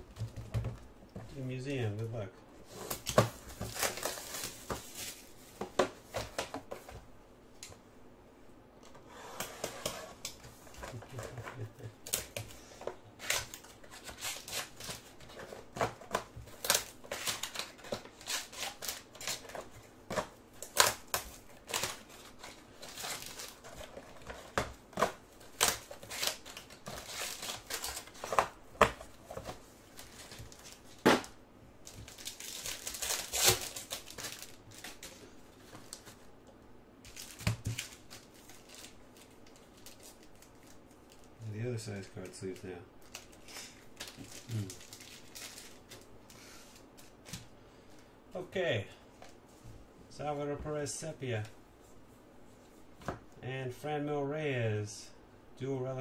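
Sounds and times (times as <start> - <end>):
plastic wrapping crinkling: 2.7 - 6.6, 10.5 - 36.2, 37.0 - 41.3, 42.0 - 47.4.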